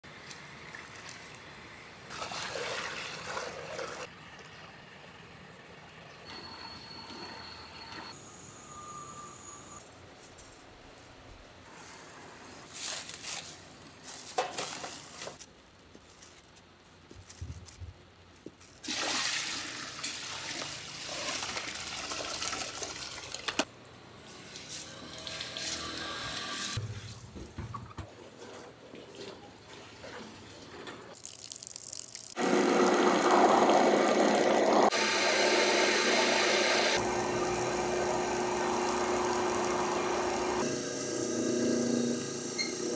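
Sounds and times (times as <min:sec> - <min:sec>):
water rushing into bucket: 0:02.1 - 0:04.1, 0:18.8 - 0:23.6
electric grinder running: 0:32.4 - 0:42.9.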